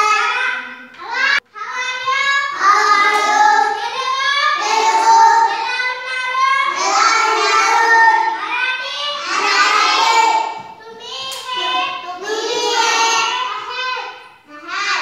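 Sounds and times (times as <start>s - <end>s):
children chanting in unison: 0.0s - 15.0s.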